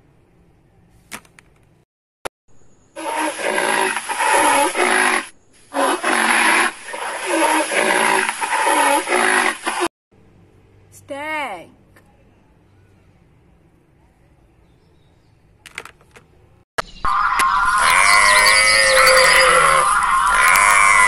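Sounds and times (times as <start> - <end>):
rhinoceros calling: 17.1 - 21.0.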